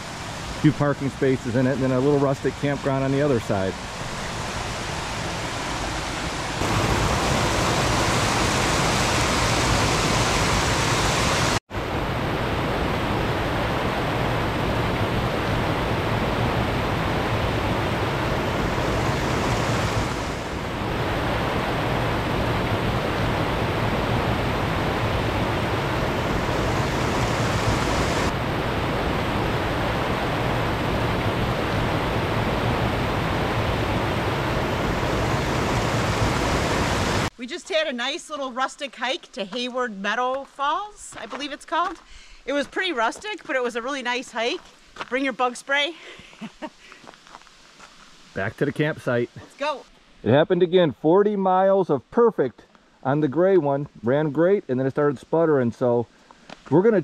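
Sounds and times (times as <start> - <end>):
waterfall rushing: 0.0 - 37.3.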